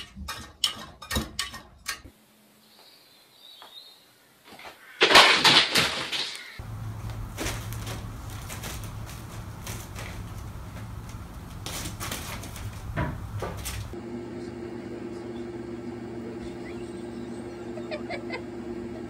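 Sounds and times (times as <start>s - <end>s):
higher steady hum: 6.6s - 19.0s
steady low hum: 6.6s - 19.0s
light knocks and thumps: 7.0s - 14.0s.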